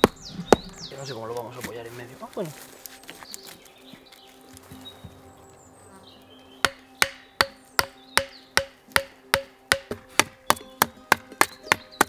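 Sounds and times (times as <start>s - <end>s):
knife chopping wooden branch: 6.6s - 12.0s.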